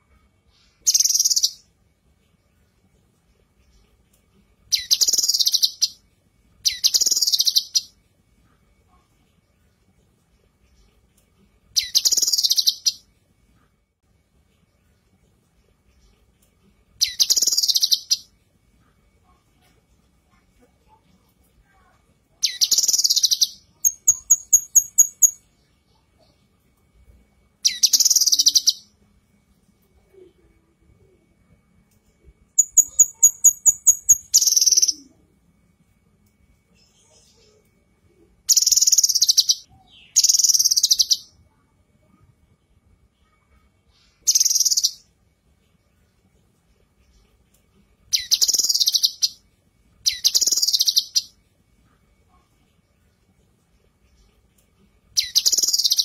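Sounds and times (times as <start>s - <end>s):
bird trilling: 50.1s - 51.3s.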